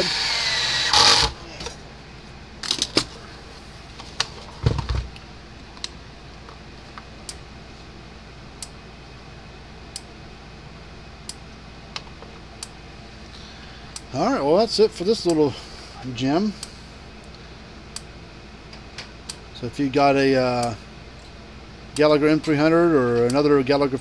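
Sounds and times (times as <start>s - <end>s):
cordless screwdriver whirring: 0.0s - 1.4s
knocks and thump of handling: 4.0s - 5.1s.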